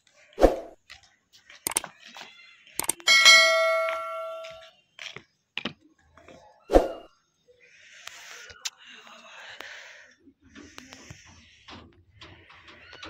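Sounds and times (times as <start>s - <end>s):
sharp clacks: 1.7s - 1.9s, 2.8s - 4.6s
metal temple bell ringing: 3.0s - 4.6s.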